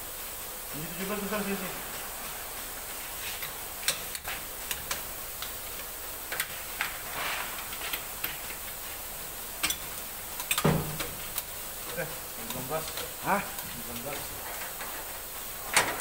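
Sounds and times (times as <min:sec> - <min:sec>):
wrenches clicking on metal bolts: 0:09.6 - 0:11.5.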